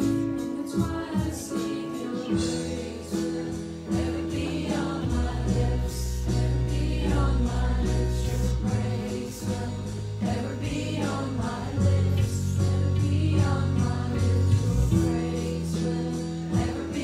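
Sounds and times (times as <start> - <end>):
woman singing: 0.0 - 3.3
electric keyboard: 0.0 - 17.0
high percussion beat: 0.0 - 17.0.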